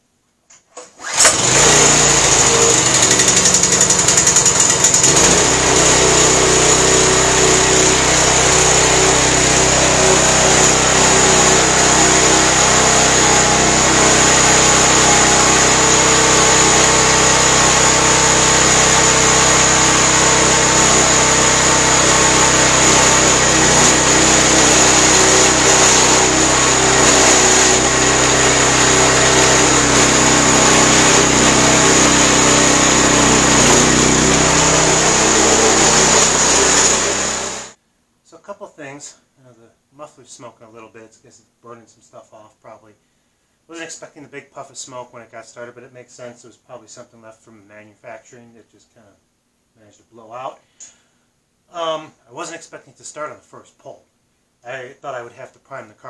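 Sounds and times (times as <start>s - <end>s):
small engine running: 1.0s - 37.8s.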